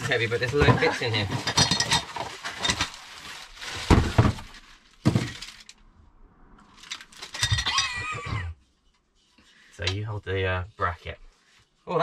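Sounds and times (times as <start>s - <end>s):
cardboard and plastic rustling: 0.0s - 5.8s, 6.7s - 7.7s.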